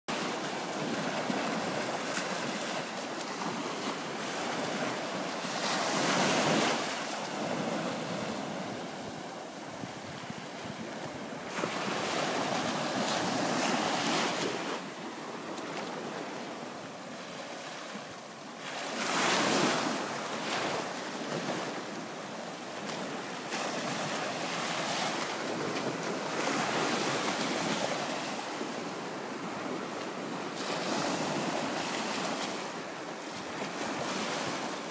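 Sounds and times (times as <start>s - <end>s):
small waves washing on sand: 0.1s - 34.9s.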